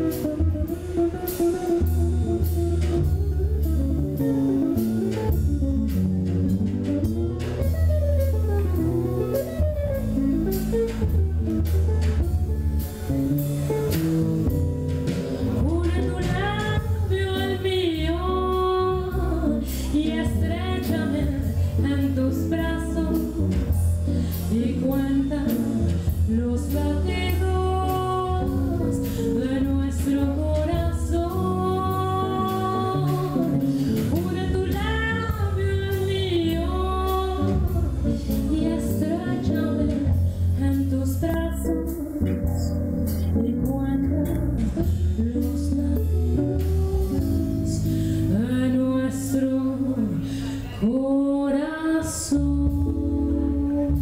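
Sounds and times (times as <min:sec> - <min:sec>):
drum kit with cymbals: 0:00.0 - 0:50.8, 0:52.2 - 0:54.0
electric guitar: 0:00.0 - 0:51.4
bass guitar: 0:00.0 - 0:54.0
woman singing slow melody: 0:15.5 - 0:54.0.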